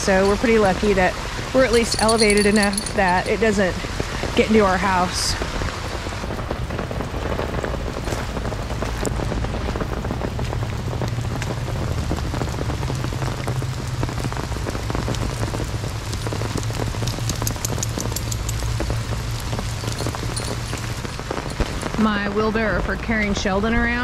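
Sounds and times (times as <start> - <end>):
heavy rain falling: 0.0 - 24.0
sharp ticks: 16.2 - 18.8.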